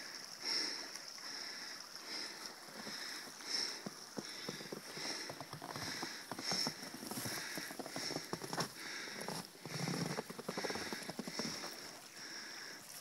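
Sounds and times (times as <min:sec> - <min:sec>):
creek water running: 0:00.0 - 0:13.0
footsteps crunching in snow: 0:02.8 - 0:12.1.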